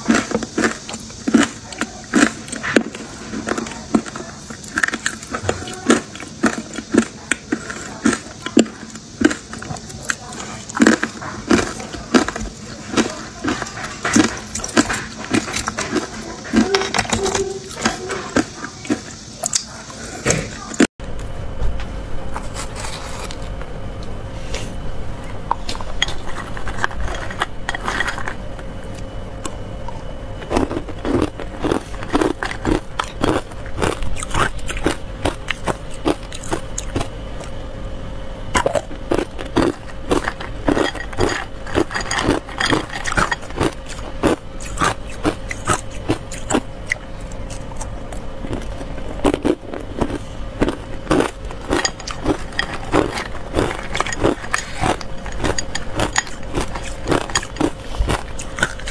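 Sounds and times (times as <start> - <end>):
ice cubes crunched by biting: 0.0 - 19.7, 30.4 - 37.5, 38.6 - 58.9
metal spoon scraping ice and bowl: 10.3 - 19.2, 22.4 - 23.5, 25.6 - 28.4, 39.2 - 46.6, 51.0 - 58.9.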